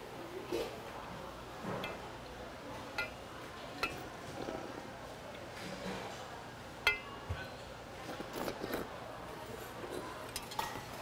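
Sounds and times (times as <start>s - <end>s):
metal spoon clinking on bowl: 6.8s - 7.1s
slurping and eating: 8.1s - 9.0s.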